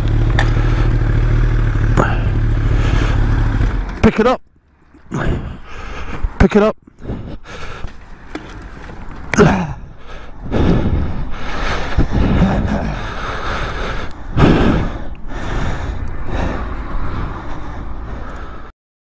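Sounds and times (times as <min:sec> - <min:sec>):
steady low rumble: 0:00.0 - 0:18.7
person breathing hard and gasping: 0:01.9 - 0:03.6, 0:05.0 - 0:08.2, 0:09.3 - 0:18.7.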